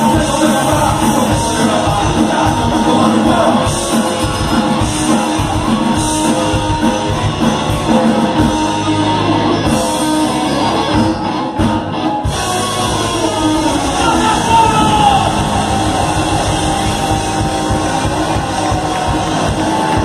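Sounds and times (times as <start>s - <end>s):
person singing: 0.0s - 8.6s
drums: 0.0s - 20.0s
loud electric guitars: 0.0s - 20.0s.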